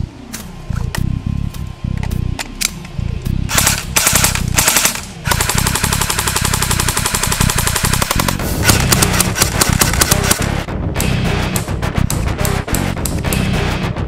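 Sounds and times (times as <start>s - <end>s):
background music: 0.0s - 14.0s
airsoft gun firing bursts: 3.5s - 10.5s.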